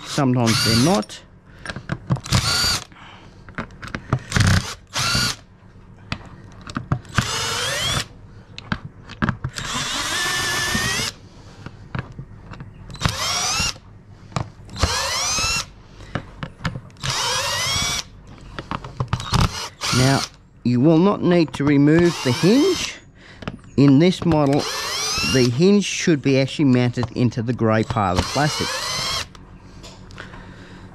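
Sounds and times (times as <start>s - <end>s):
cordless drill motor whining: 0.0s - 1.2s, 2.2s - 2.9s, 4.2s - 5.5s, 7.0s - 8.1s, 9.5s - 11.2s, 12.9s - 13.8s, 14.7s - 15.7s, 17.0s - 18.1s, 19.2s - 20.4s, 21.0s - 23.0s, 23.7s - 29.4s.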